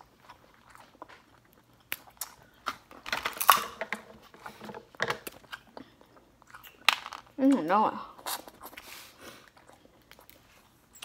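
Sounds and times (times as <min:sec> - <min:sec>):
chewing: 0:00.0 - 0:03.0, 0:05.3 - 0:11.0
crab shells cracking: 0:00.8 - 0:04.1, 0:06.4 - 0:07.6.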